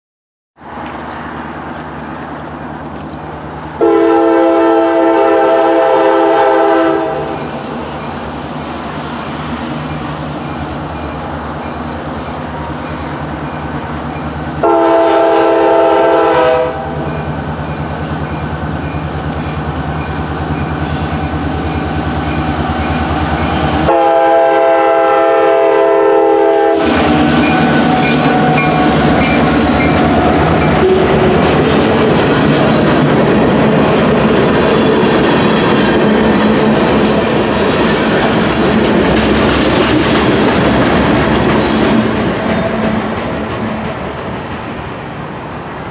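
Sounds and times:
diesel locomotive running: 0:00.6 - 0:45.9
train cars rumbling on rails: 0:00.6 - 0:45.9
train horn blasts: 0:03.8 - 0:07.5, 0:14.6 - 0:17.1, 0:23.8 - 0:31.4.

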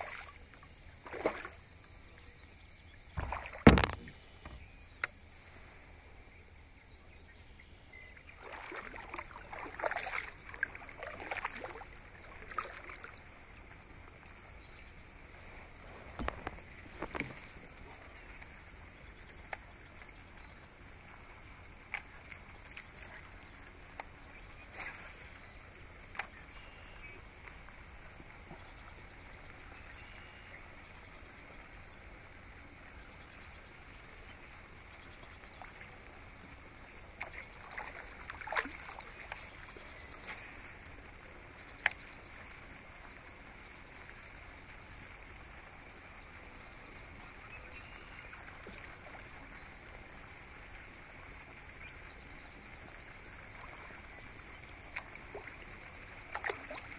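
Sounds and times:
paddle knocking on plastic hull: 0:03.2 - 0:04.6.

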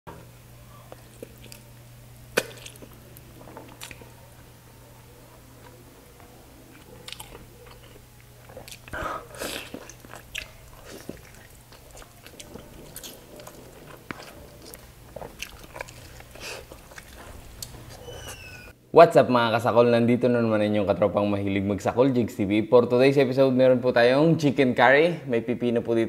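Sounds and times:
faint low hum: 0:00.1 - 0:24.5
person chewing food: 0:00.7 - 0:18.7.

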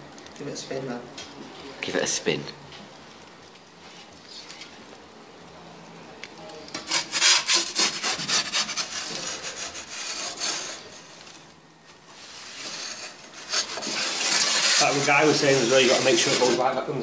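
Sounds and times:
pizza peel scraping oven floor: 0:06.7 - 0:16.9.

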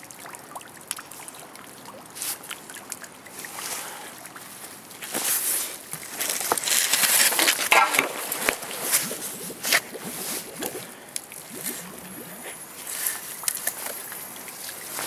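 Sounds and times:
wet mud squelching: 0:03.4 - 0:15.0
metal bicycle scraping and rattling: 0:06.1 - 0:09.0.

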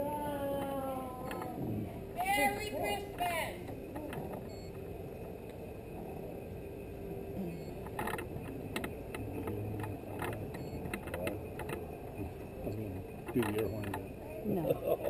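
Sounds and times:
vehicle driving slowly: 0:00.6 - 0:15.0
rattles and knocks: 0:07.8 - 0:14.1.

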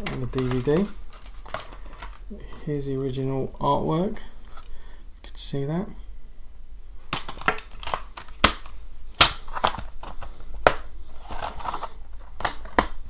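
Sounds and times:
plastic cases clicking: 0:00.0 - 0:02.2, 0:07.1 - 0:13.0.

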